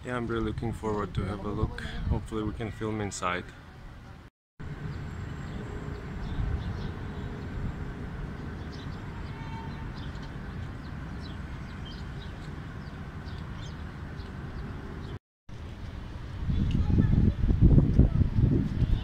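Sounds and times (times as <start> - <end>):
low city rumble: 0.0 - 19.0
small birds chirping: 8.3 - 15.2.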